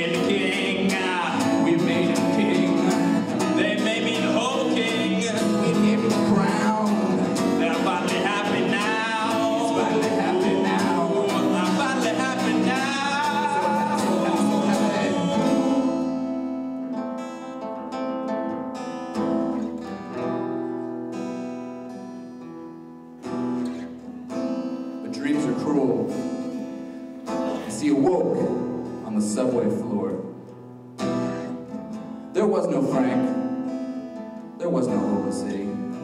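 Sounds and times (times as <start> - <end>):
man singing: 0.0 - 16.6
acoustic guitar strumming: 0.0 - 36.0.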